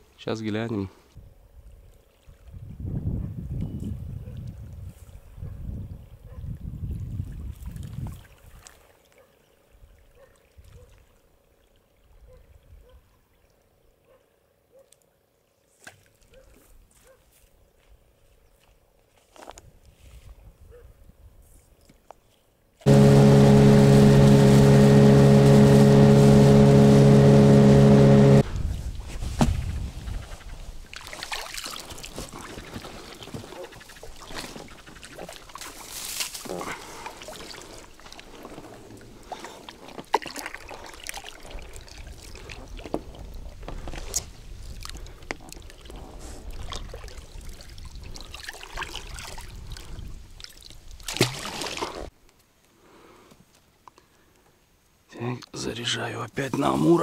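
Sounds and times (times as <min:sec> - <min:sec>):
loud steady buzzing tone: 0:22.9 - 0:28.4
water splashing and dripping: 0:30.9 - 0:38.6, 0:39.3 - 0:52.1.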